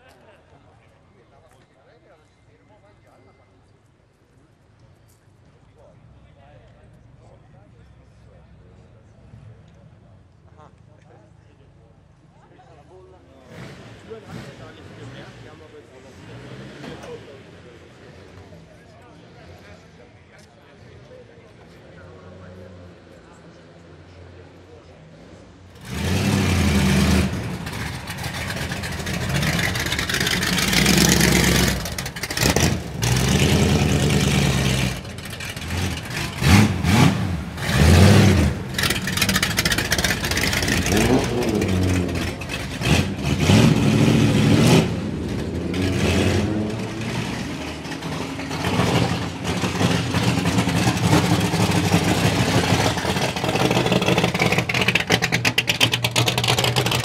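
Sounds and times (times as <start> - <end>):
race car engines revving: 12.9 - 57.0.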